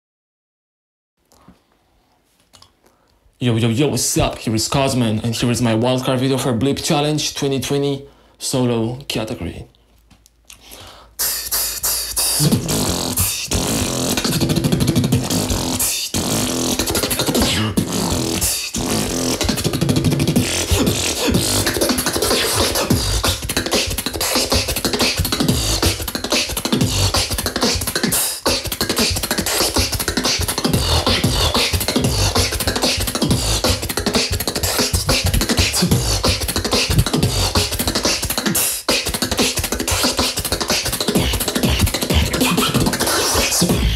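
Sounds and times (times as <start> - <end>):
fast beatboxing: 10.5 - 43.9.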